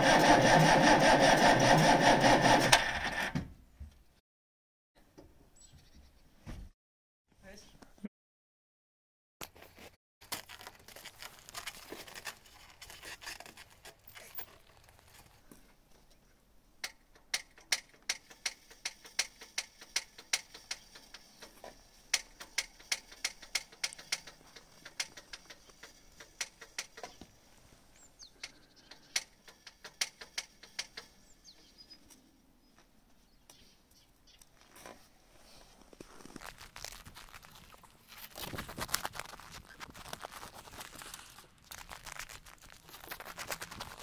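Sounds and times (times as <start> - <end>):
rustling: 9.5 - 16.3, 34.4 - 44.0
fuel pump clicking: 16.8 - 27.2, 28.4 - 31.2.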